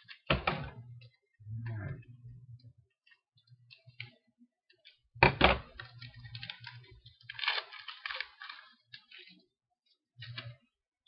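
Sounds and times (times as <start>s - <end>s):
wrapper crinkling: 5.8s - 9.5s
wrapper cracking: 6.1s - 9.3s.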